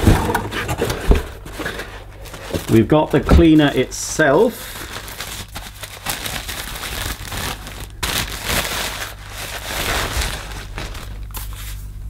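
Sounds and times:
plastic wrap crinkling: 0.0 - 11.9.

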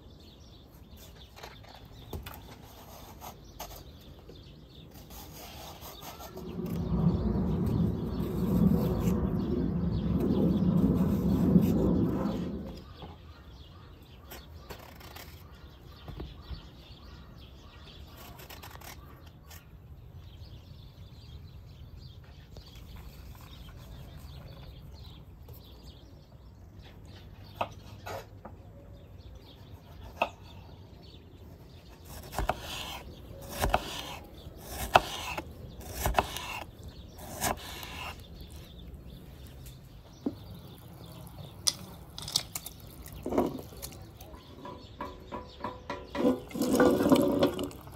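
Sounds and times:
knife cutting on wooden board: 32.0 - 38.2.

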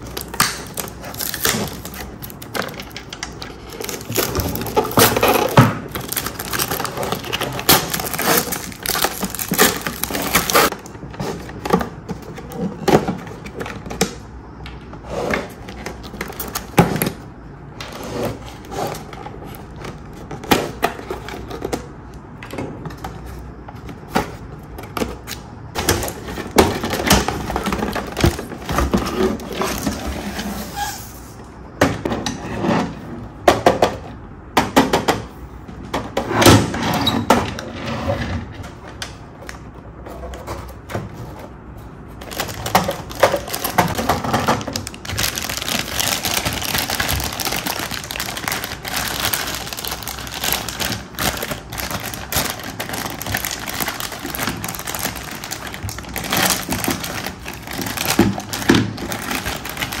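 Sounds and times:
plastic bag crinkling: 0.0 - 10.9, 42.2 - 60.0.

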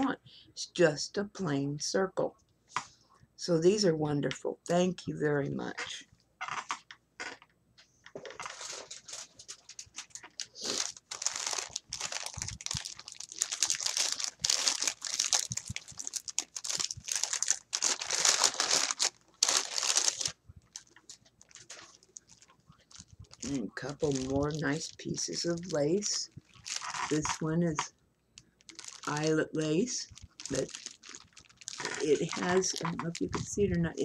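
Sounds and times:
plastic wrapping crinkling: 8.2 - 34.0.

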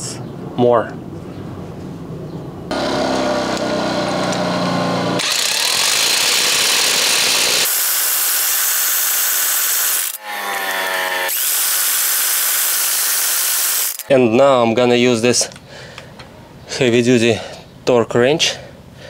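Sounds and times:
impact wrench motor whirring: 2.7 - 14.1
impact wrench hammering: 5.2 - 14.1.

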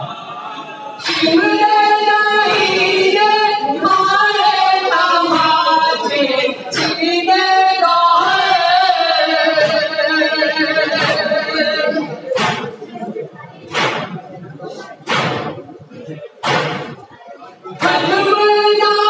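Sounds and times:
men chanting through loudspeaker: 0.0 - 12.4
hands slapping chests: 12.4 - 12.8, 13.7 - 14.2, 15.0 - 15.6, 16.4 - 17.0.

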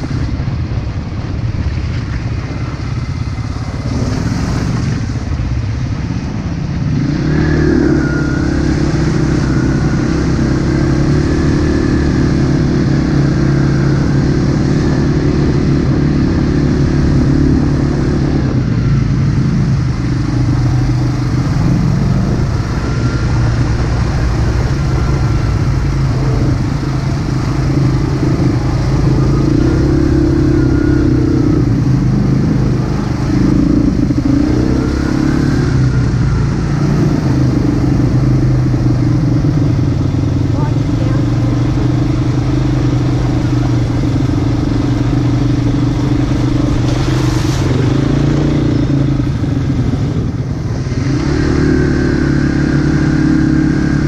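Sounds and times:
dirt bike engine running: 0.0 - 54.0.

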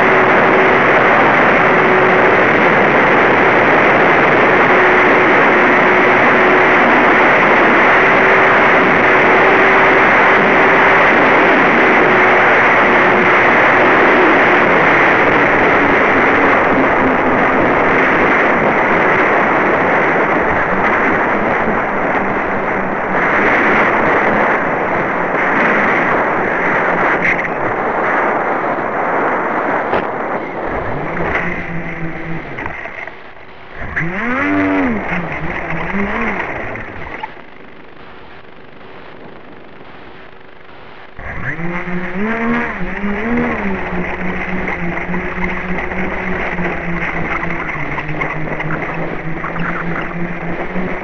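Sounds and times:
electric motors humming: 33.8 - 38.4, 41.2 - 51.0.

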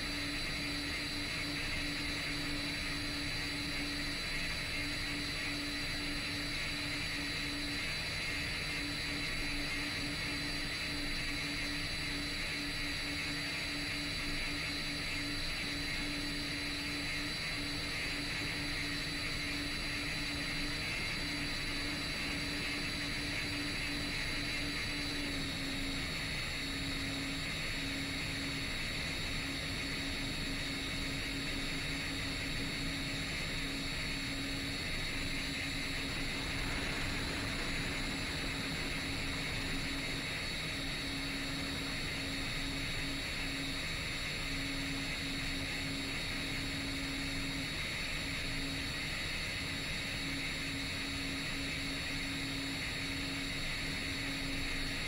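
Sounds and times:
quadcopter motors whirring: 0.0 - 55.0
low hum: 8.4 - 45.5.

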